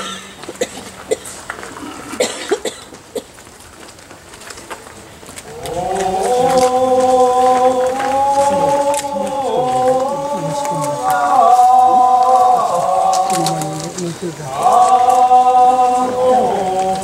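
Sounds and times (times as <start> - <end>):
voices moving beneath: 4.8 - 17.0
men chanting a held note: 5.5 - 17.0.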